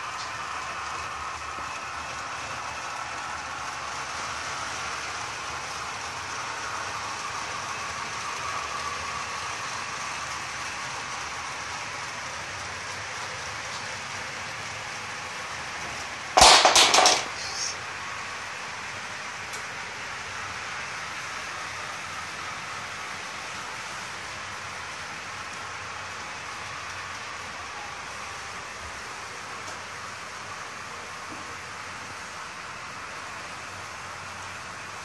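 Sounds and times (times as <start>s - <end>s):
model train running on track: 0.0s - 35.0s
clatter of sharp knocks: 16.4s - 17.7s.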